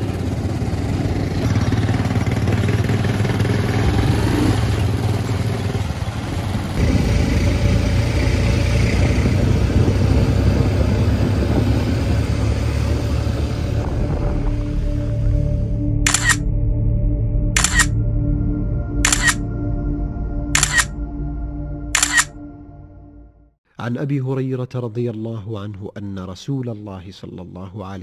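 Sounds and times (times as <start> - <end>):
small motorcycle engines running: 0.0 - 13.5
road and wind noise: 0.0 - 16.4, 17.6 - 17.9, 19.0 - 19.4, 20.6 - 20.9, 22.0 - 22.4.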